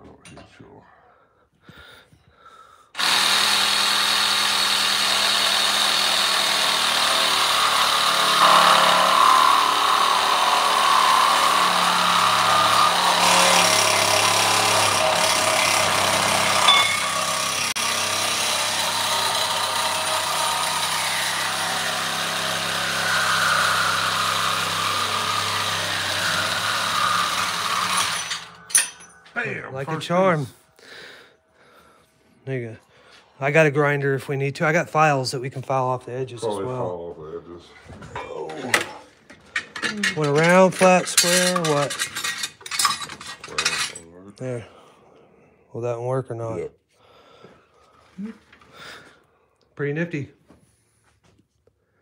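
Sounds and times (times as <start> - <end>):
reciprocating saw cutting steel: 3.0 - 31.3, 39.6 - 44.0.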